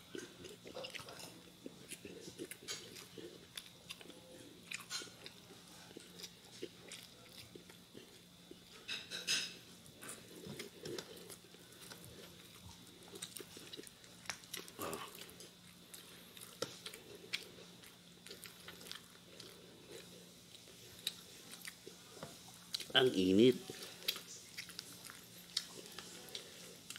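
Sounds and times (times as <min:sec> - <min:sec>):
person chewing food: 0:00.0 - 0:09.0, 0:09.9 - 0:22.9, 0:23.6 - 0:26.9.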